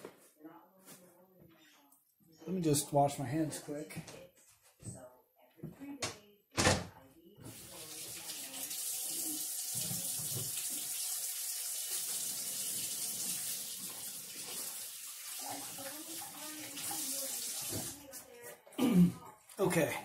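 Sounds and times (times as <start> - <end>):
faucet running: 7.5 - 18.1.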